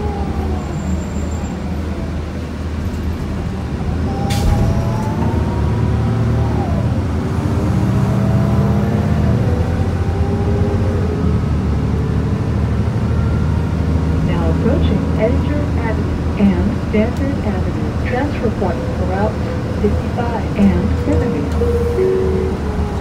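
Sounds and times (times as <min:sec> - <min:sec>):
bus engine hum: 0:00.0 - 0:23.0
transmission whine: 0:14.2 - 0:23.0.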